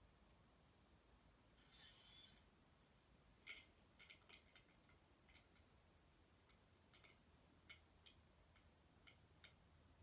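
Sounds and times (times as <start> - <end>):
faint light clicks and ticks: 3.4 - 5.8, 6.4 - 9.7.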